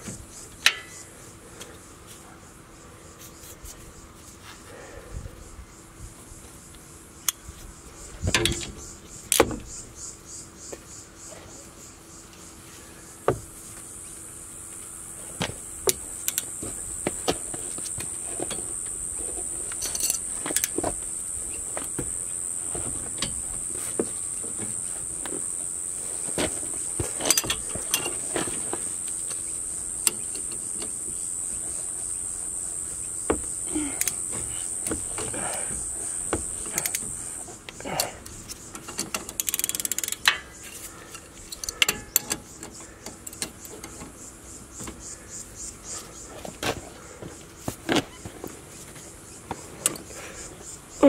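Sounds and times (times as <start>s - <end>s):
wrench clicking on metal: 36.6s - 37.1s, 38.0s - 44.0s.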